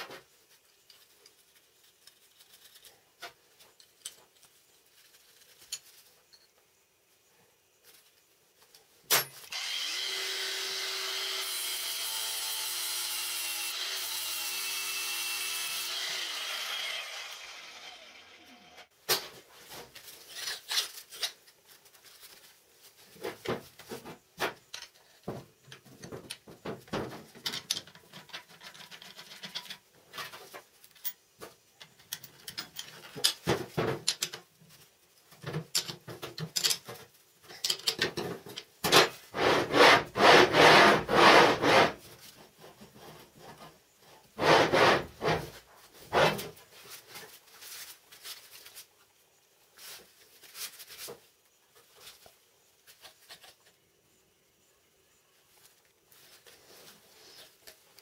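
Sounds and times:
steel parts clicking and knocking: 0:24.6 - 0:34.5, 0:35.4 - 0:39.2
rough metal scraping: 0:38.2 - 0:43.7, 0:44.3 - 0:46.6.

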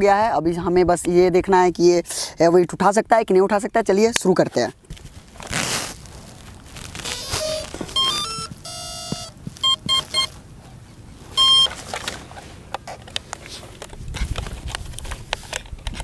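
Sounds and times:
motor start-up beeps: 0:07.5 - 0:10.3, 0:11.4 - 0:11.7.

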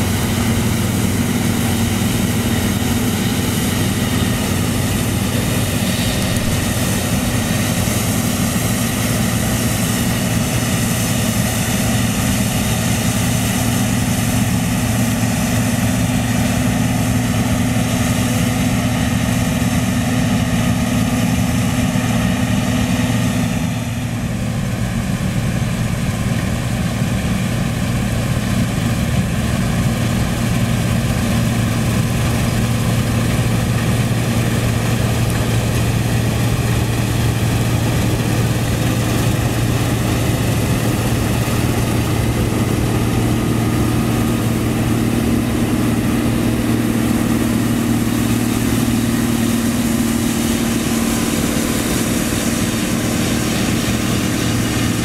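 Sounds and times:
combine harvester running: 0:00.0 - 0:55.0.

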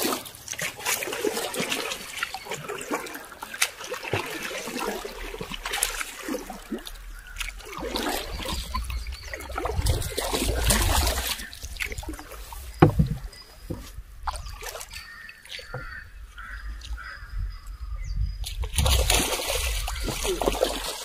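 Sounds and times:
water splashing and trickling: 0:00.0 - 0:21.0
fish thrashing at surface: 0:18.7 - 0:21.0.

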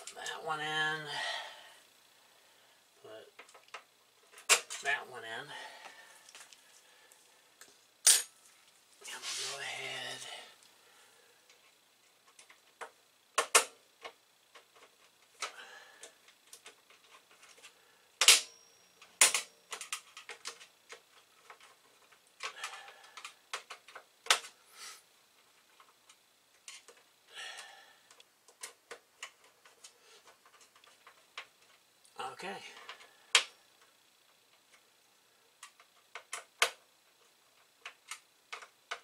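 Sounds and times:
metallic ring: 0:08.0 - 0:08.3.

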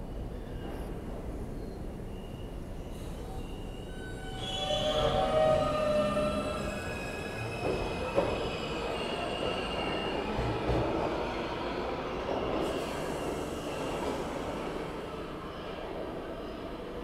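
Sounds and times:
high wheel squeal: 0:02.1 - 0:10.3
train wheels rumbling on rails: 0:04.8 - 0:15.1.

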